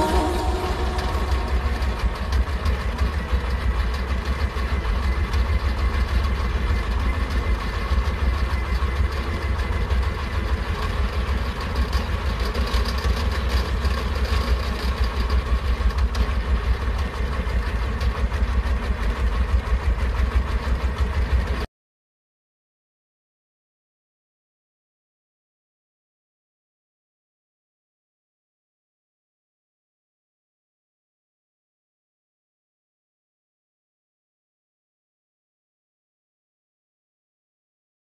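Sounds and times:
diesel engine chugging: 0:00.0 - 0:21.7.

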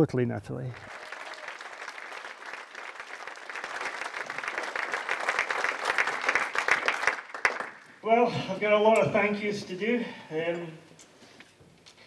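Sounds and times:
audience applauding: 0:00.7 - 0:08.0.

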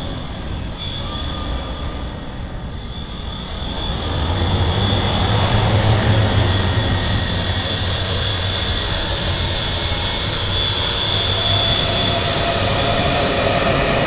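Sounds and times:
drone propellers whining: 0:03.5 - 0:14.0.

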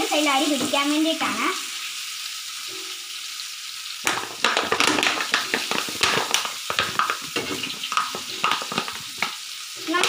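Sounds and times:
fish sizzling in hot oil: 0:00.0 - 0:10.0
utensil scraping a pan: 0:04.1 - 0:10.0.

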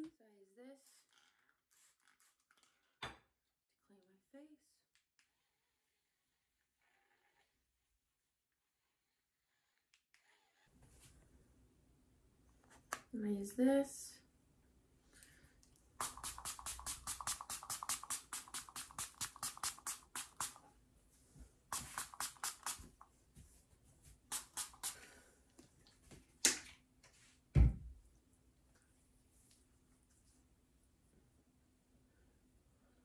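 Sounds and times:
spray bottle spritzing: 0:16.0 - 0:20.6, 0:21.7 - 0:23.0, 0:24.3 - 0:25.1.

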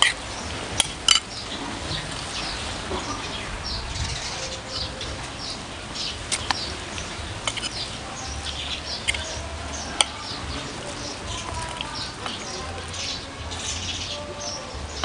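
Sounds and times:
cutlery clicking against plate: 0:07.5 - 0:07.7.

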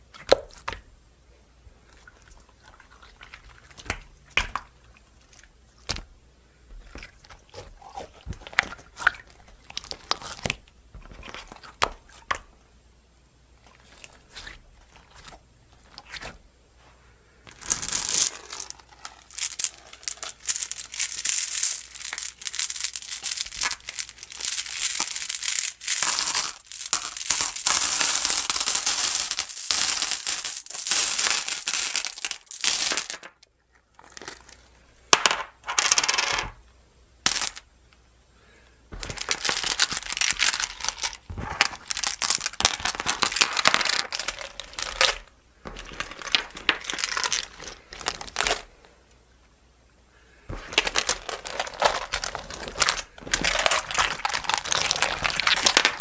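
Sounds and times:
glass pebbles clinking: 0:17.6 - 0:33.3, 0:37.3 - 0:37.7, 0:39.0 - 0:48.7, 0:50.5 - 0:56.0.

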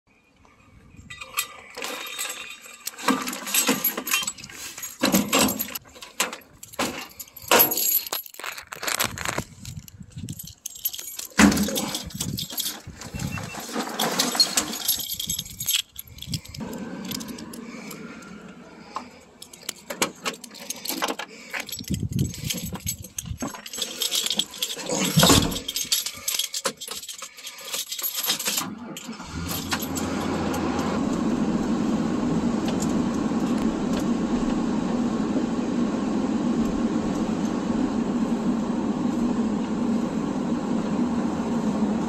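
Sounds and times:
fishing gear rattling and clinking: 0:01.1 - 0:30.2.

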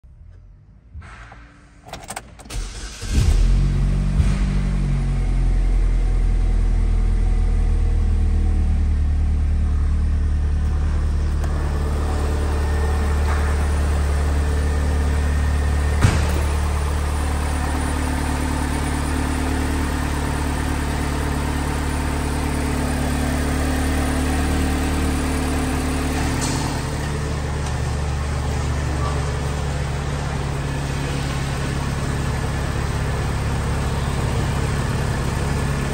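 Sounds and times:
car engine starting and idling: 0:00.1 - 0:35.9.

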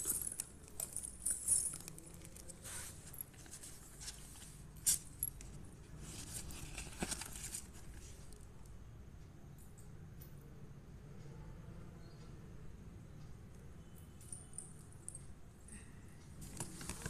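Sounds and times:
paper and card crinkling: 0:06.0 - 0:08.4, 0:16.4 - 0:17.0.

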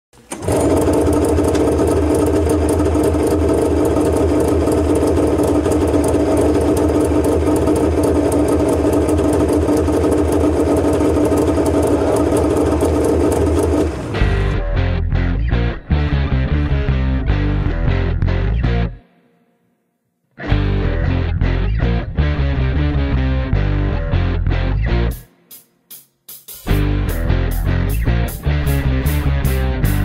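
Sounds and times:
snowmobile engine idling: 0:01.1 - 0:14.5.

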